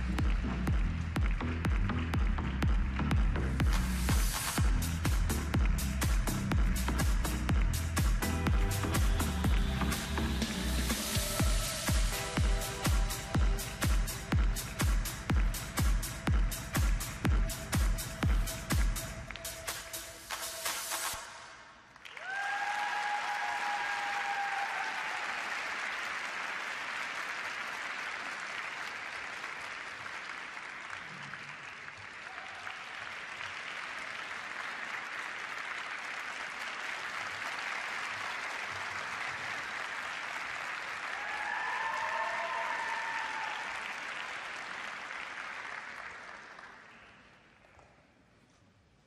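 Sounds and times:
crowd applauding: 0:00.0 - 0:21.2, 0:21.9 - 0:47.8
shouted cheers: 0:22.1 - 0:26.1, 0:32.2 - 0:33.0, 0:41.0 - 0:44.4.

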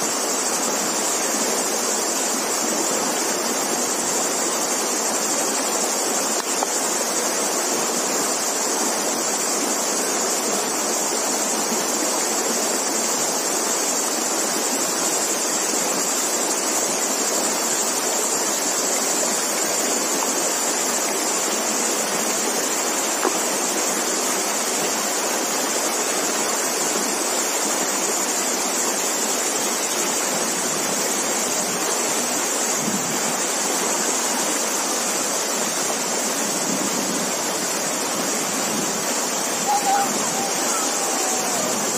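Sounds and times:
stream rushing over stones: 0:00.0 - 0:41.9.

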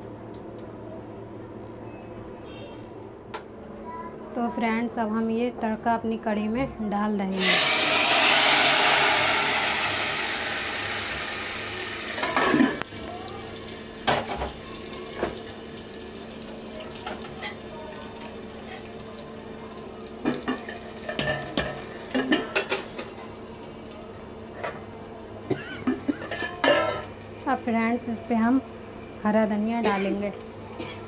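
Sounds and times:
hot oil sizzling loudly: 0:07.3 - 0:23.7.

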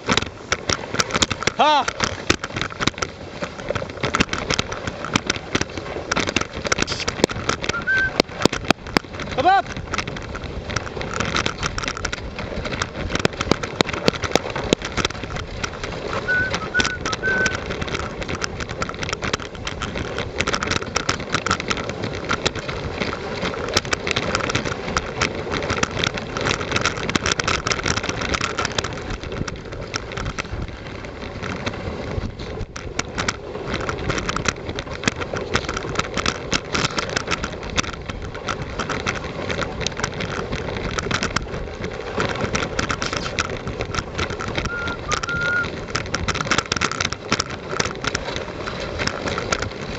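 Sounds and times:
wheels crunching and rattling: 0:00.0 - 0:49.9
short high squeaks: 0:07.7 - 0:08.2, 0:16.2 - 0:17.6, 0:44.6 - 0:45.8.

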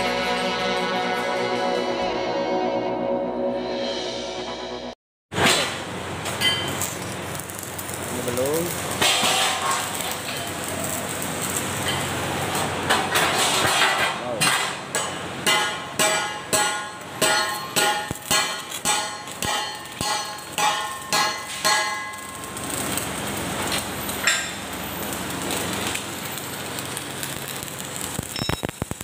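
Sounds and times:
hammer striking steel: 0:05.4 - 0:07.0, 0:08.9 - 0:10.7, 0:12.9 - 0:22.8, 0:24.2 - 0:24.7
electric arc welding hiss: 0:05.4 - 0:12.9, 0:15.3 - 0:29.0.

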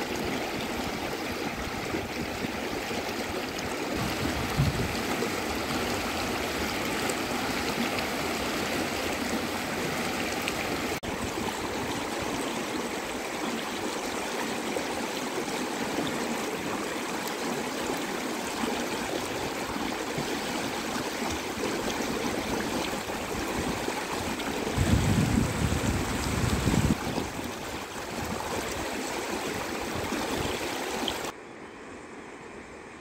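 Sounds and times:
river rushing over rocks: 0:03.0 - 0:13.2.

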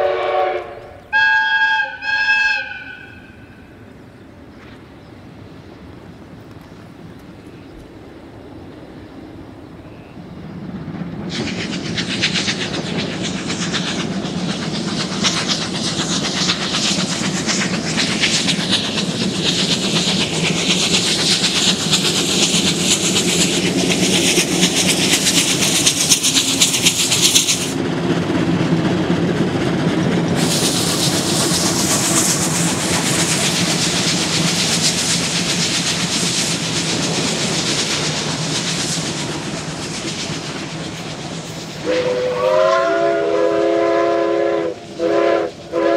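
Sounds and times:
train wheels clattering over rails: 0:10.3 - 0:42.9
steam hissing: 0:10.4 - 0:27.8, 0:30.3 - 0:45.9.

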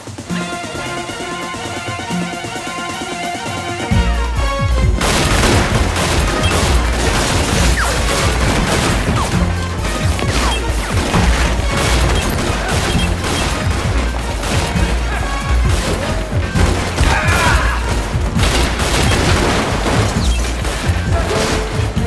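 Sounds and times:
rapid gunfire: 0:00.0 - 0:22.0
crashing impacts: 0:04.9 - 0:22.0.

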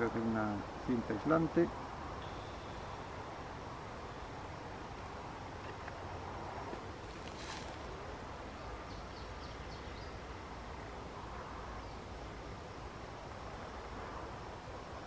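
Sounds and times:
bird chirping: 0:02.2 - 0:03.2, 0:08.6 - 0:10.2.

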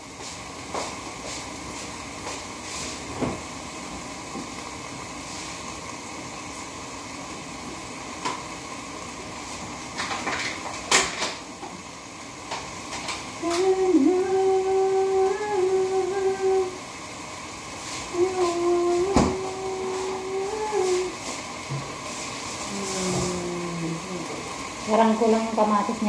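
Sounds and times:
woman humming: 0:13.4 - 0:16.9, 0:18.1 - 0:21.3, 0:22.6 - 0:25.4.

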